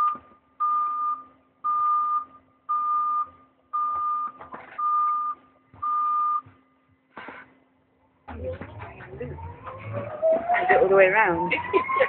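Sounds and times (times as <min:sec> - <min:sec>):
mid-pitched warning beeps: 0:00.0 - 0:06.6.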